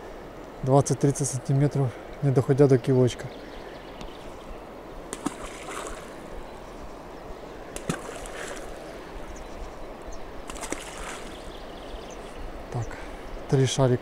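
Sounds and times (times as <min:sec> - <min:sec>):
faint background hiss: 0:00.0 - 0:14.0
small splashes in water: 0:05.1 - 0:06.3, 0:07.8 - 0:09.0, 0:10.4 - 0:11.7.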